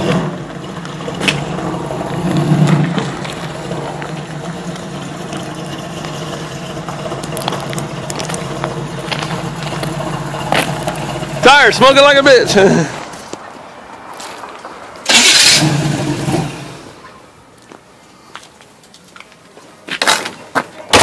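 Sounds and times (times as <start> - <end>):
car engine running and idling: 0.0 - 13.3, 15.0 - 17.2.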